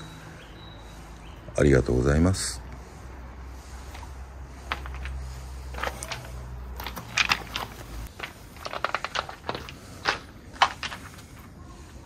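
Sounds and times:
footsteps crunching on gravel: 3.9 - 11.5.

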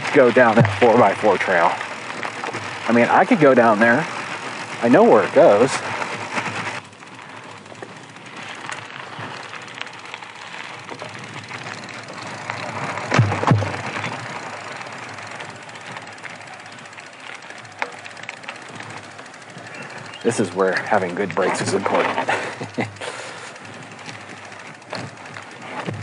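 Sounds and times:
bike rattling: 0.0 - 26.0
tyres on dirt trail: 0.0 - 26.0
heavy thumps of bike jolting: 10.8 - 16.2, 23.6 - 26.0.

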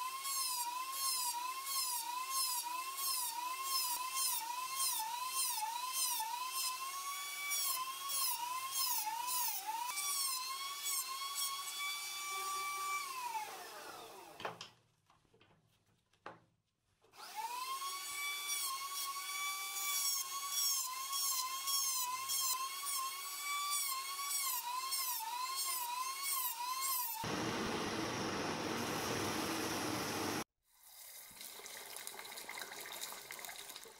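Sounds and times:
power tool whining: 27.2 - 30.5.

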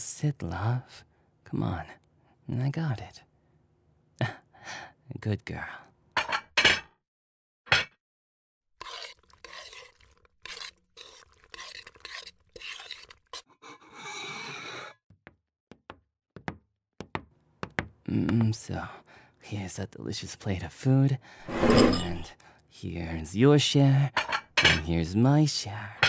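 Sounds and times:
utensils scraping plates: 21.4 - 22.3.

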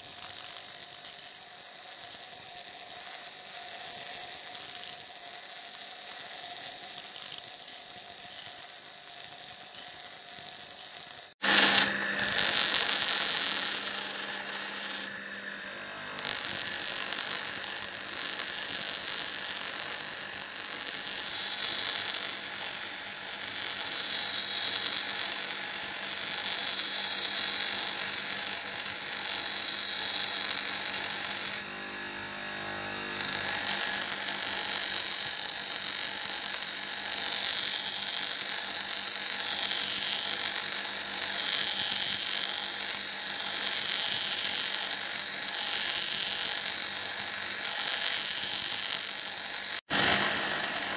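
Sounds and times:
grinder motor running: 0.0 - 50.9
high-pitched grinding hiss: 1.1 - 15.5, 33.3 - 50.9.

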